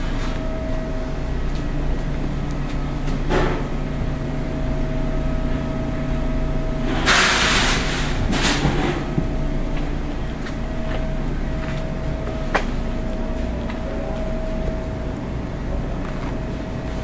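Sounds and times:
low mechanical hum: 0.0 - 17.0
hiss: 7.0 - 8.0
faint high whine: 9.3 - 16.9.

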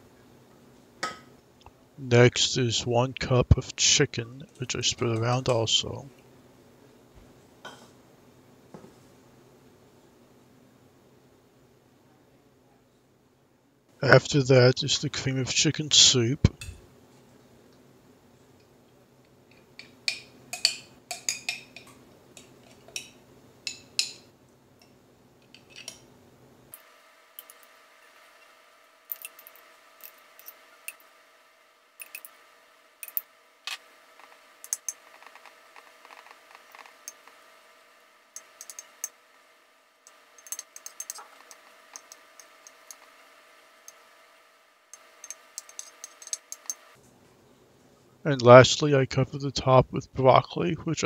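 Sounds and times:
faint steady hum: 0.0 - 51.0
metal spoon clinking on glass: 34.7 - 35.0, 38.4 - 39.2, 40.4 - 43.0, 45.2 - 46.8
spoon scraping glass dish: 40.4 - 43.0, 45.2 - 46.9.

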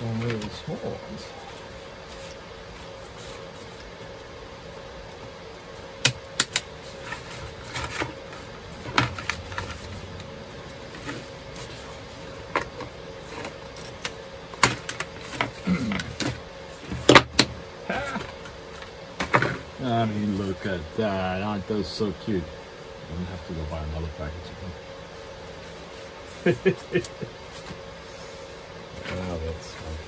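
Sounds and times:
cardboard rustling: 6.7 - 17.5.

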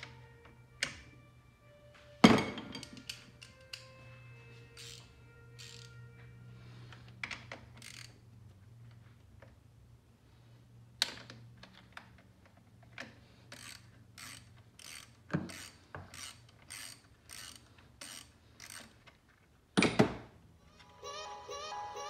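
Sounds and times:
socket ratchet clicking: 4.7 - 6.0, 7.4 - 8.2, 13.5 - 19.0.

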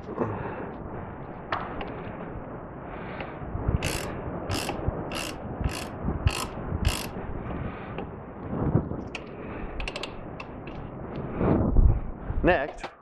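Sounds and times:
ratchet wrench clicking: 3.8 - 7.2.

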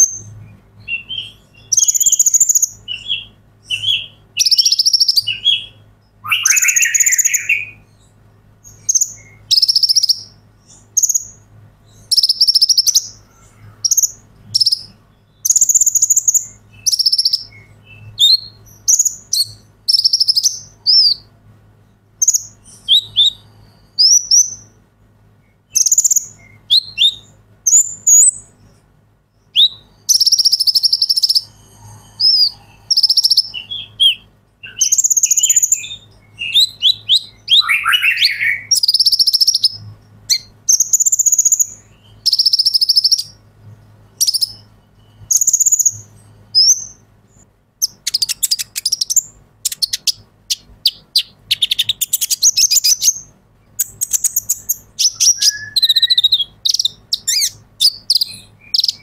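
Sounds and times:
sunbird singing chirps and trills: 0.0 - 59.0.

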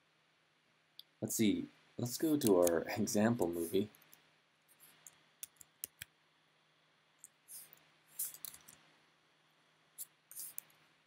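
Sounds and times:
computer mouse clicks: 2.3 - 2.8, 4.9 - 6.1, 7.2 - 8.8.

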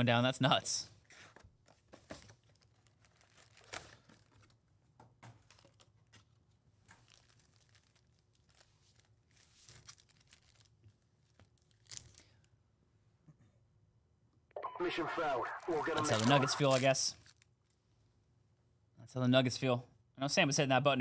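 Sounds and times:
cardboard and foil crinkling: 2.1 - 4.6, 6.9 - 12.4, 15.6 - 17.4.

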